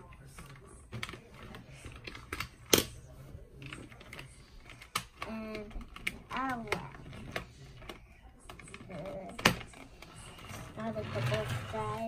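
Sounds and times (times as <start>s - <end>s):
plastic toys clicking and clattering: 0.0s - 12.0s.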